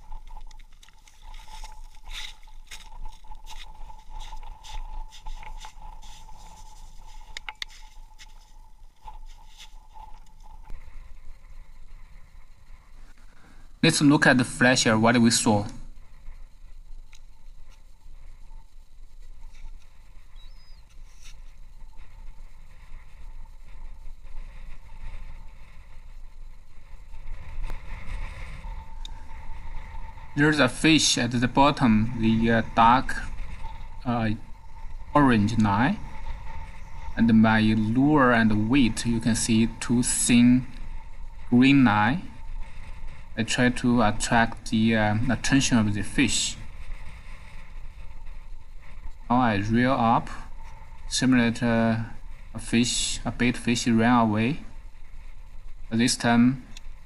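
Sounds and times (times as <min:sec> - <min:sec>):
faint steady tone: 0:00.0 - 0:57.0
wind buffeting microphone: 0:00.0 - 0:57.0
boots crunching on snowy ice: 0:00.6 - 0:09.9.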